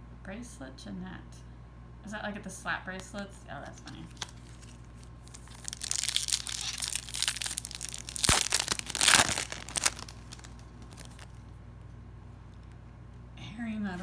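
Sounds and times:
foil wrapper crinkling and tearing: 4.1s - 11.5s
sharp foil crack: 5.3s - 11.4s.

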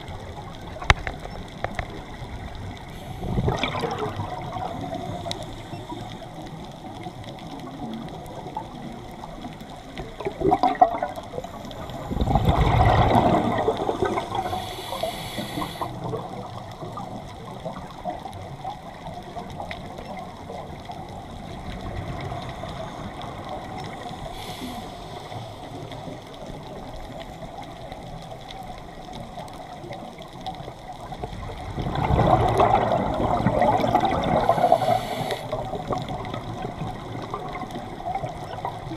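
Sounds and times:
regulator bubbling underwater: 0.0s - 38.9s
rush of exhaled bubbles: 2.9s - 5.9s, 10.0s - 18.0s, 31.1s - 38.9s
inhalation hiss: 14.2s - 16.0s, 24.2s - 25.8s, 34.4s - 35.7s.

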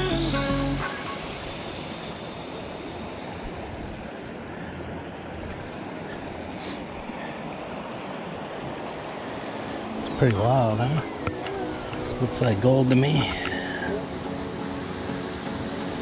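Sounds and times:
creek rushing over rocks: 4.2s - 16.0s.

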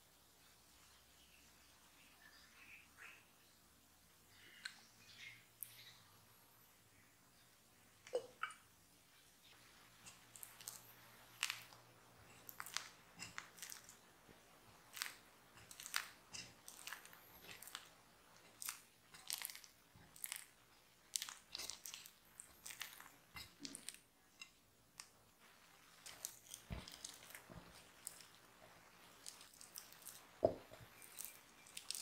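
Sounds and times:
dough squelching: 9.4s - 32.0s.

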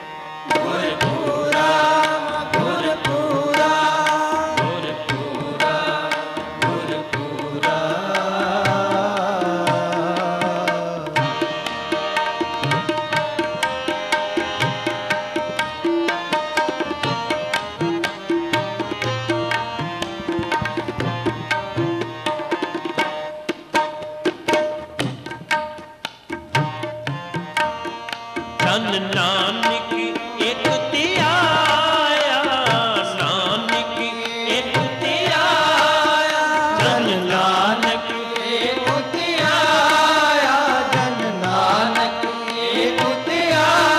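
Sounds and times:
harmonium chords: 0.0s - 43.9s
tabla strokes: 0.0s - 43.9s
man singing: 0.4s - 12.2s, 28.4s - 43.9s.

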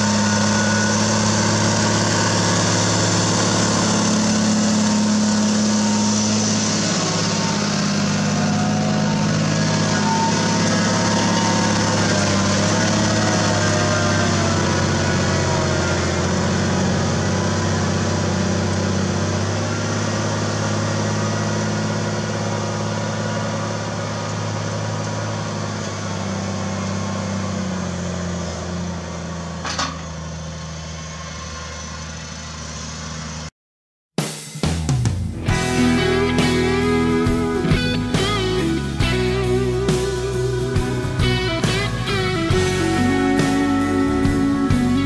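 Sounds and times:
tractor diesel engine running: 0.0s - 33.5s, 35.2s - 45.0s
guitar music: 35.3s - 45.0s.

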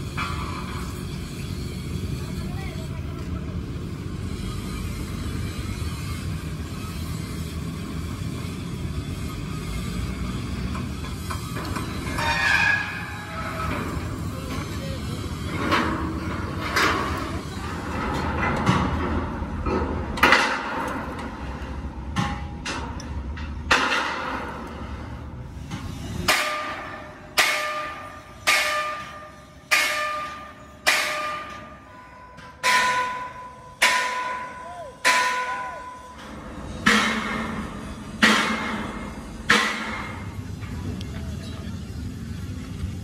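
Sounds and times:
hammer striking steel plate: 17.9s - 21.4s, 23.7s - 24.7s, 25.7s - 40.4s.

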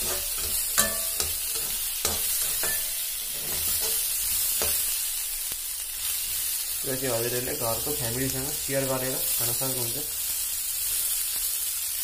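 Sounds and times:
metal spatula scraping a pan: 0.0s - 5.0s
kernels sizzling in oil: 0.0s - 12.0s.

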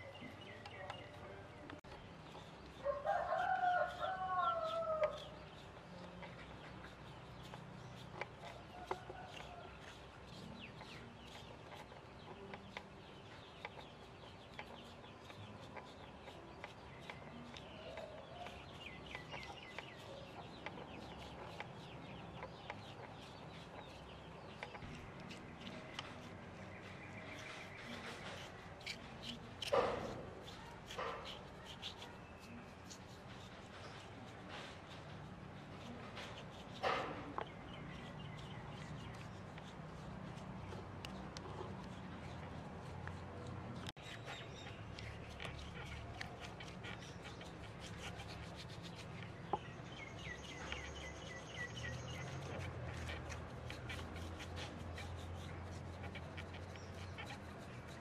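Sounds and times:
rooster crowing: 2.8s - 5.2s.

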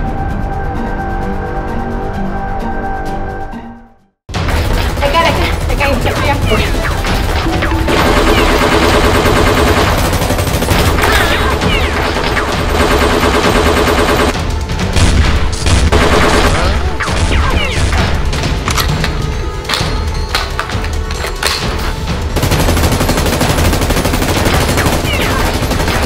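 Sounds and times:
background music: 0.0s - 26.0s
automatic gunfire bursts: 4.6s - 14.4s, 15.7s - 18.0s, 22.4s - 26.0s.

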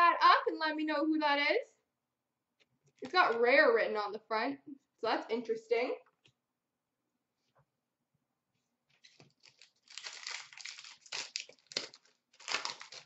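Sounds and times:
plastic wrapper crinkling: 8.9s - 13.0s.

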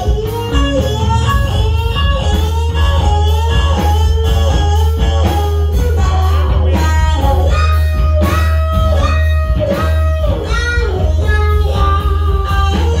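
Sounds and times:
bass guitar: 0.0s - 13.0s
electric guitar lead: 0.0s - 13.0s.

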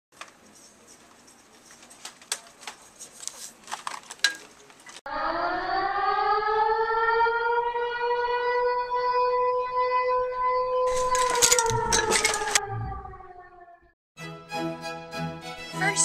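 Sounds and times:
siren wailing: 5.1s - 14.0s.

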